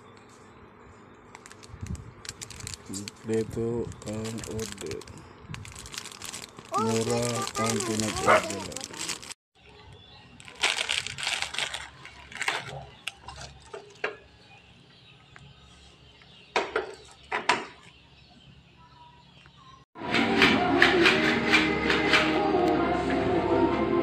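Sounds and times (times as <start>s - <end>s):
plastic bags crinkling: 1.3s - 9.4s, 10.3s - 13.7s.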